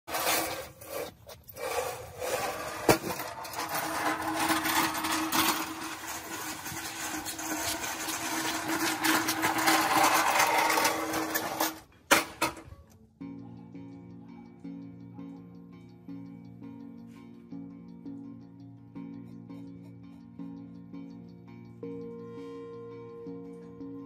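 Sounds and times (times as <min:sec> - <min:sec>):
pallet truck wheels clattering: 0:00.1 - 0:12.7.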